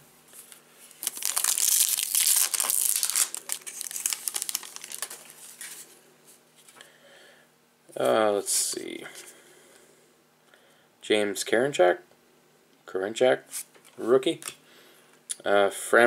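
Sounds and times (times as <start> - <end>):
wrapper tearing and crinkling: 1.0 - 5.8.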